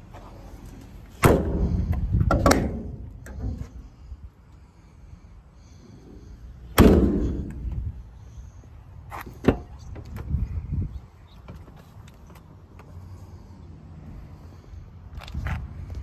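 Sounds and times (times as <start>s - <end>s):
truck compartment doors slamming: 6.8s - 7.8s.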